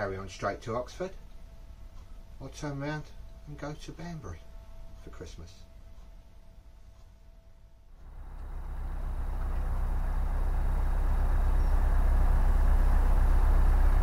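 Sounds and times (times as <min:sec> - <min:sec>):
boat engine running: 0:08.0 - 0:14.0.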